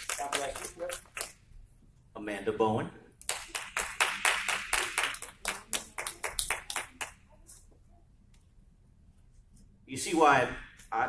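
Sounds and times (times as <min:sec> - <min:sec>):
hand clapping: 0:00.0 - 0:01.4, 0:03.2 - 0:07.2.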